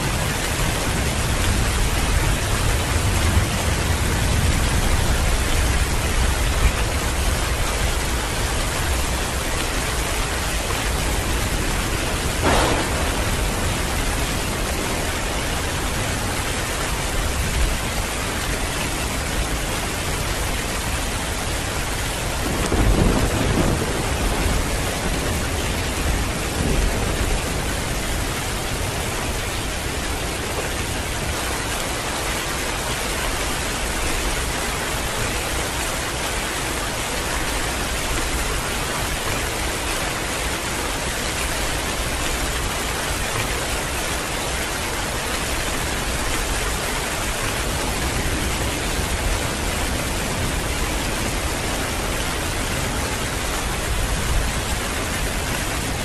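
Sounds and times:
thunder rumbling: 0.0 - 31.5, 44.7 - 56.0
heavy rain pouring: 0.0 - 56.0.

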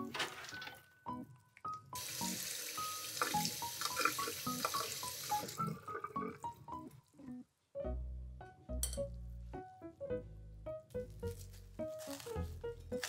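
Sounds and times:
light piano music: 0.0 - 13.0
tap water running into strainer: 2.0 - 6.0.

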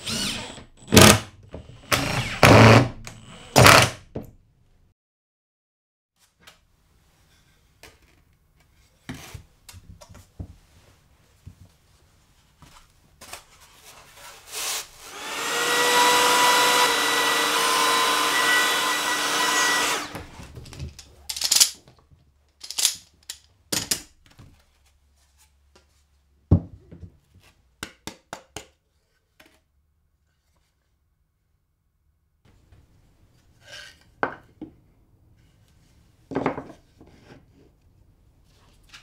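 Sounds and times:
power tool cutting plywood: 0.0 - 4.0, 14.6 - 20.4.

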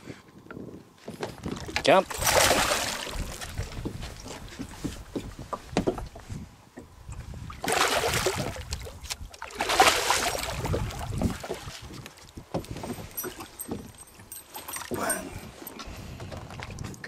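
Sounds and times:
fish thrashing and splashing: 1.5 - 4.5, 7.6 - 12.0.

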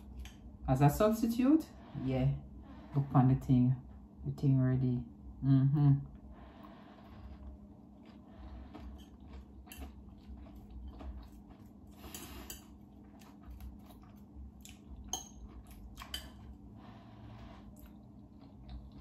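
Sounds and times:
faint steady hum: 0.0 - 19.0
chewing: 6.1 - 19.0.

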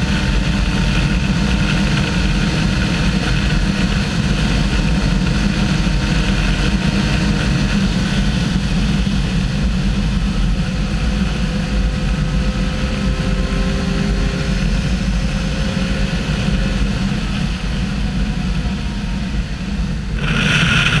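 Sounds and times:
motorcycle engine running: 0.0 - 21.0
wind buffeting microphone: 16.3 - 21.0.

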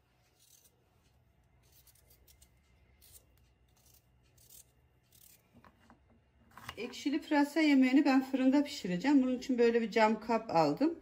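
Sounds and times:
knife cutting carrot on board: 1.6 - 6.8.

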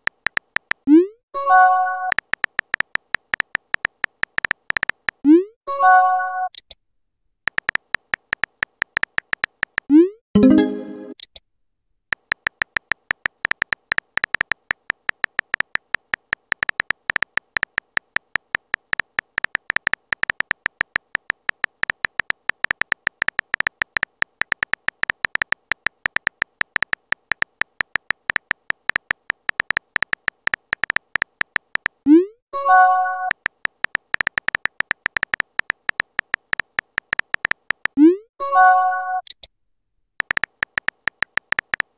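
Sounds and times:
phone keyboard typing clicks: 0.0 - 0.9, 1.6 - 5.2, 7.5 - 9.9, 12.1 - 32.0, 32.9 - 38.0, 40.2 - 41.9.

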